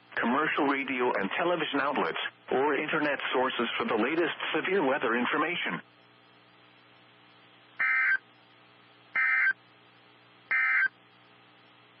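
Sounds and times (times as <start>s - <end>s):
buzzy digital data tones: 7.8s - 8.2s, 9.2s - 9.6s, 10.5s - 10.9s.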